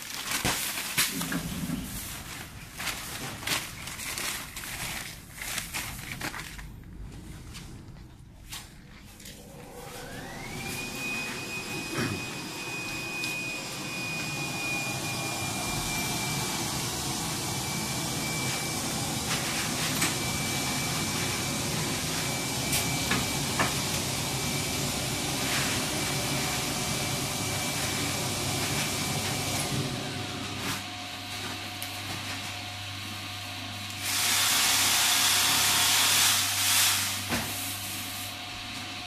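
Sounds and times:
machine motor high whine: 9.2s - 31.1s.

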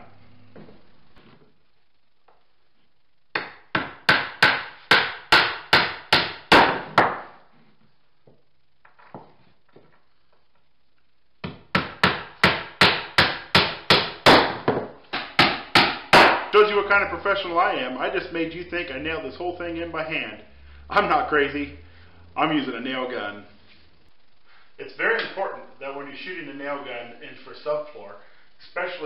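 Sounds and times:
hammer striking nails into wood: 3.3s - 7.3s, 11.4s - 16.5s.

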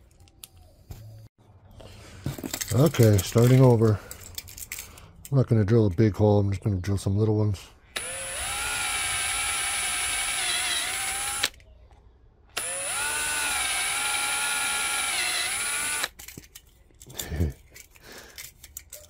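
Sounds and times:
cordless drill whining: 8.0s - 11.6s, 12.6s - 16.2s.

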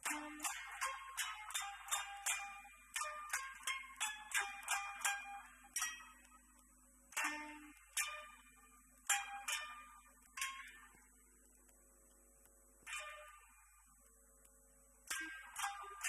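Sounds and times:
plucked koto notes: 0.0s - 6.4s, 7.1s - 11.1s, 12.9s - 13.7s, 15.1s - 16.0s.

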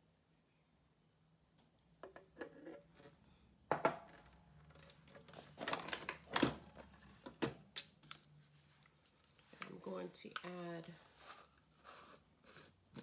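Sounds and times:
containers knocking on counter: 3.7s - 4.0s.

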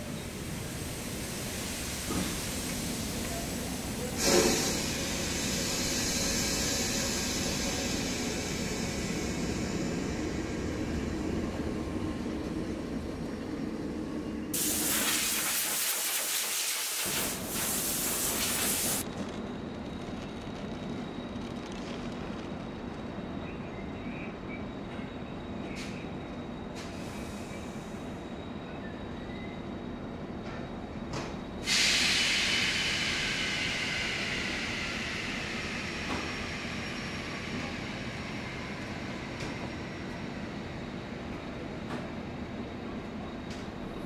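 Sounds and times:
steam locomotive rumble: 0.0s - 15.8s, 31.1s - 44.0s
steam hissing: 0.1s - 11.6s, 14.6s - 19.0s, 31.6s - 38.3s.

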